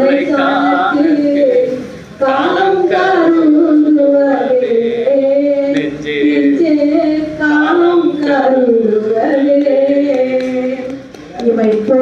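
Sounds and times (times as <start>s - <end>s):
devotional singing: 0.0s - 12.0s.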